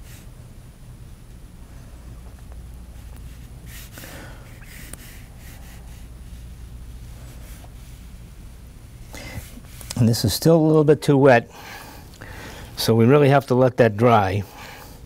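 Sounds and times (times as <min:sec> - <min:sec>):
room hum: 0:00.0 - 0:15.0
soft breaths: 0:01.6 - 0:08.4, 0:09.0 - 0:10.0, 0:11.4 - 0:12.8, 0:14.4 - 0:15.0.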